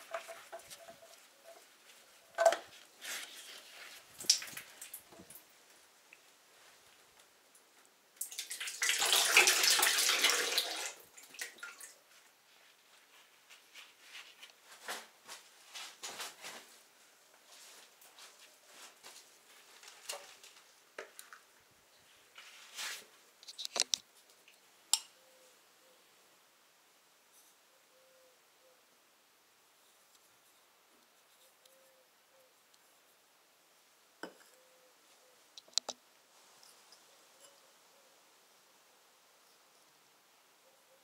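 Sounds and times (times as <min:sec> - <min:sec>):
oil pouring and splashing: 0:08.2 - 0:11.7.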